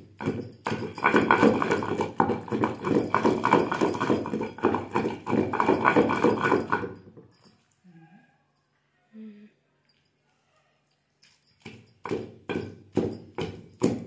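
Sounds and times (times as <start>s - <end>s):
pestle pounding in stone mortar: 0.0s - 7.2s, 11.5s - 14.0s.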